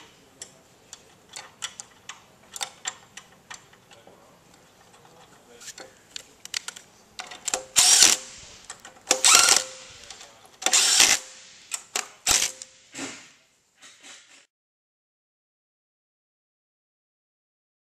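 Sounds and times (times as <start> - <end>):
metal clicks of socket and bolts: 0.4 - 4.6
cordless power driver bursts: 7.6 - 13.0.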